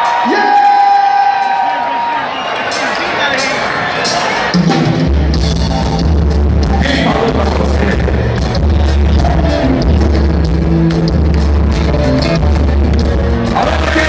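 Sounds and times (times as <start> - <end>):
percussion hits: 2.6 - 14.0
guitars: 2.7 - 14.0
heavy bass line: 4.8 - 14.0.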